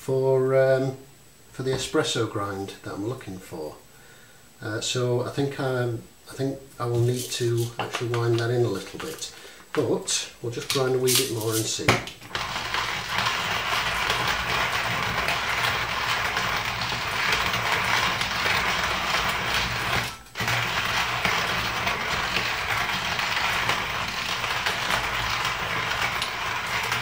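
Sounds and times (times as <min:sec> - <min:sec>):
hand coffee grinder crunching beans: 0:06.9 - 0:09.4, 0:10.5 - 0:27.0.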